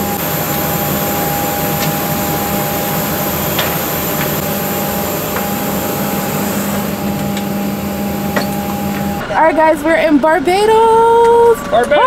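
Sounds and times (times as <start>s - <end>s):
low machinery hum and whine: 0.0s - 9.7s.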